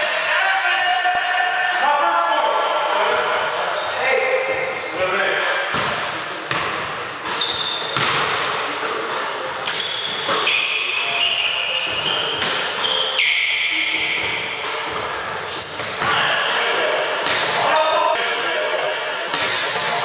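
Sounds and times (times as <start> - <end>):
sneakers squeaking on wooden floor: 2.8 - 4.9, 5.6 - 16.4
basketball bouncing on hardwood: 8.0 - 8.3.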